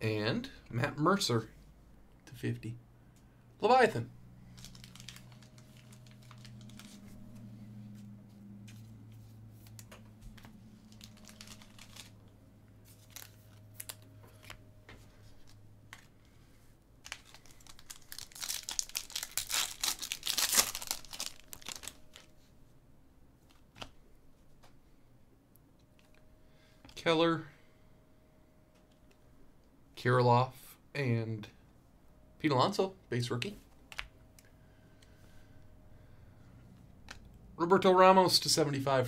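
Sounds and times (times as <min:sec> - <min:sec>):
wrapper tearing and crinkling: 0:04.5 - 0:07.2, 0:10.8 - 0:12.3, 0:12.9 - 0:14.1, 0:17.0 - 0:22.3.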